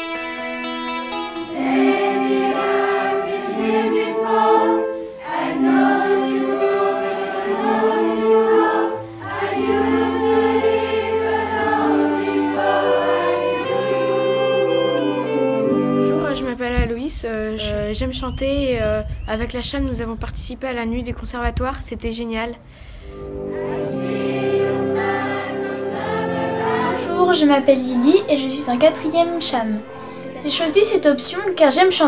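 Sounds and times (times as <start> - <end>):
youth choir singing: 1.5 - 15.3, 23.3 - 30.9
wind band of clarinets and flutes: 1.5 - 16.5.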